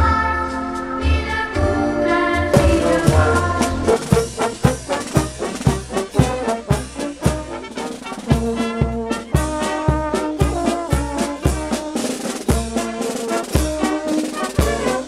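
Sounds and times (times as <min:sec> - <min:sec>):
brass band playing a march: 0:02.5 - 0:15.0
bass drum beat: 0:02.6 - 0:07.5.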